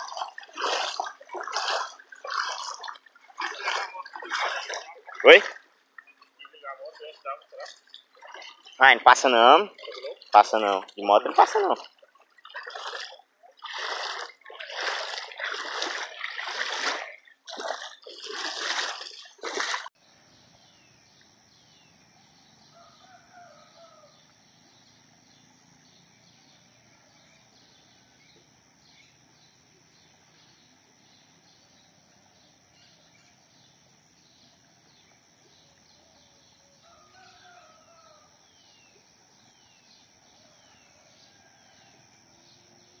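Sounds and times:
faint chirping: 20.0 - 43.0
rooster crowing faintly: 22.7 - 24.3, 36.8 - 38.4.

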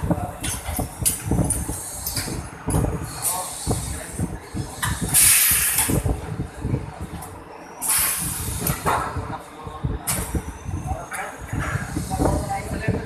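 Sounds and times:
air exhaust hiss: 1.4 - 6.3, 7.8 - 9.4, 10.2 - 13.0.

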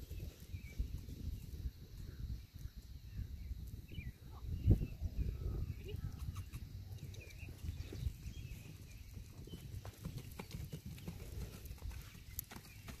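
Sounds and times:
horse hoofbeats on dirt: 6.3 - 13.0.

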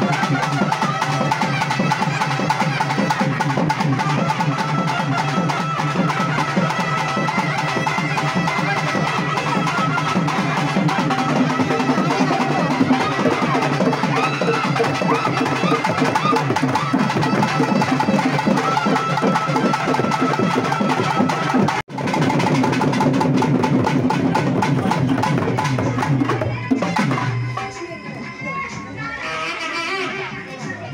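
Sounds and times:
fast dense drumming: 6.8 - 27.2.

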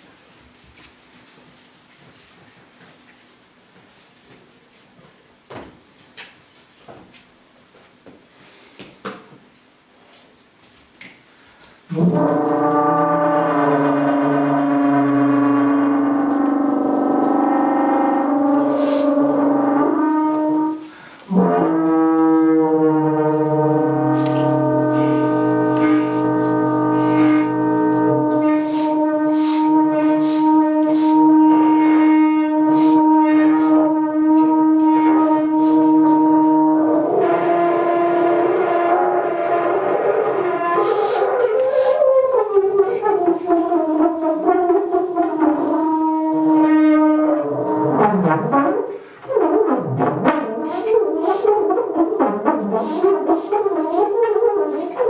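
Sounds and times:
trombone long held note: 11.9 - 55.0.

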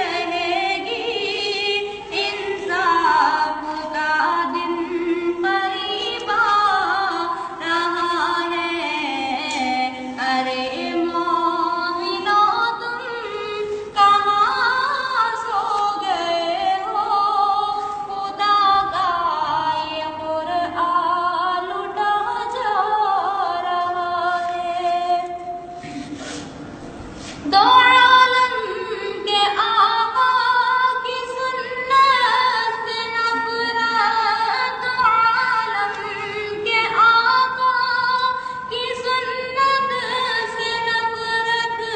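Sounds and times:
person singing unaccompanied: 27.4 - 41.9.

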